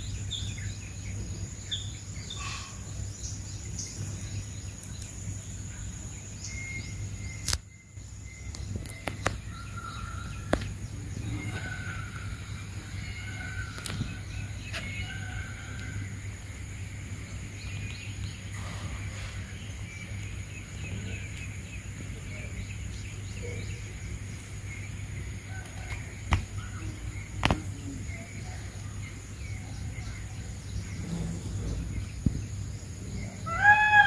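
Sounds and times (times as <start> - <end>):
small birds calling: 0.0 - 34.0.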